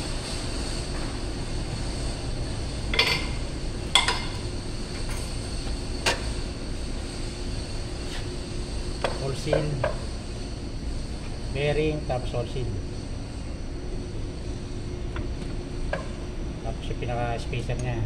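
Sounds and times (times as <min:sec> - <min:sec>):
steady machine hum: 0:00.0 - 0:18.0.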